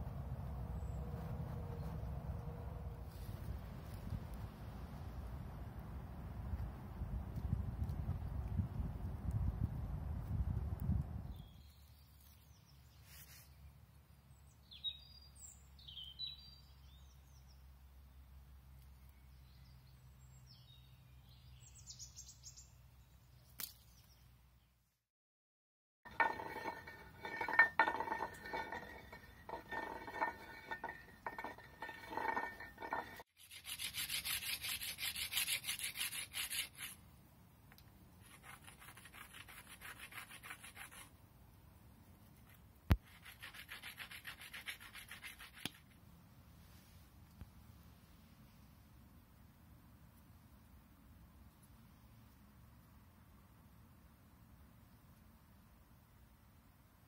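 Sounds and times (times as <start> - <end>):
stone grinding on stone: 26.1 - 37.0.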